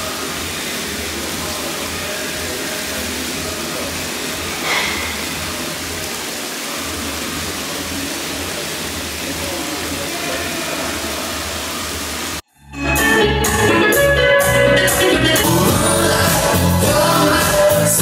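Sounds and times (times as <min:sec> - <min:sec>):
brief loud hiss: 0:04.5 - 0:05.8.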